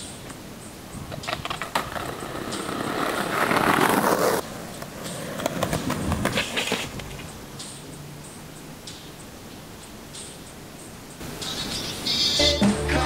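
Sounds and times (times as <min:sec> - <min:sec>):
skateboard wheels rolling on pavement: 0:00.2 - 0:07.4
skateboard clacking on concrete: 0:01.1 - 0:07.3.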